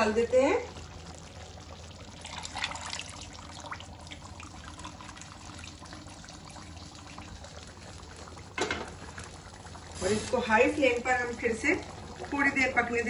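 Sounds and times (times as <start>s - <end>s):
stock pouring into a pot: 1.9s - 10.5s.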